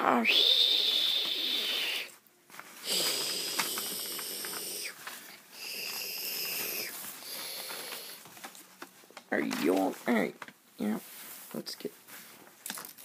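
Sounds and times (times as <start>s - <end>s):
person making hissing noises: 0.0s - 2.2s, 2.8s - 8.2s
paper crinkling: 2.5s - 13.0s.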